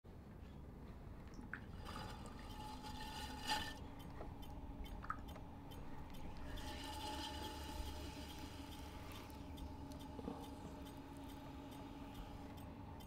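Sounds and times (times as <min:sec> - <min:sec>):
steady low hum: 0:00.1 - 0:13.0.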